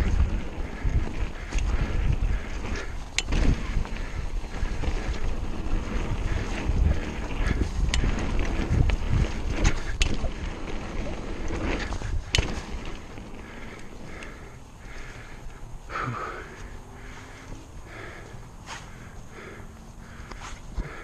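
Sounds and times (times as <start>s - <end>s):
wind buffeting microphone: 0.0s - 15.4s
bike clacking over bumps: 0.0s - 21.0s
tyres rumbling over dirt: 0.0s - 21.0s.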